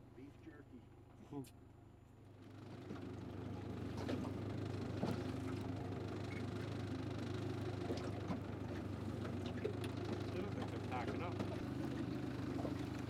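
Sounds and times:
motorboat engine running: 2.6 - 13.0
water against hull: 7.8 - 13.0.

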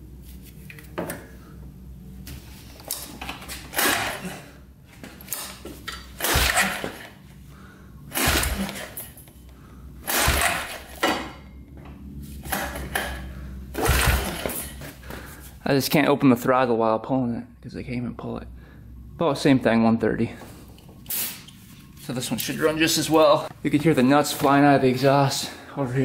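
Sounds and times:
recoil pull-starter rasping: 3.7 - 4.4, 6.2 - 7.2, 8.1 - 9.2, 10.0 - 11.0, 12.4 - 14.8.

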